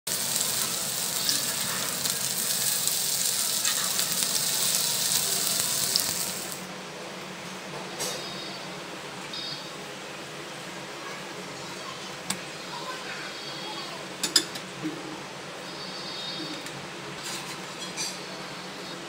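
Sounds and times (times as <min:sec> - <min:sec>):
oil sizzling in a pan: 0:00.1 - 0:06.7.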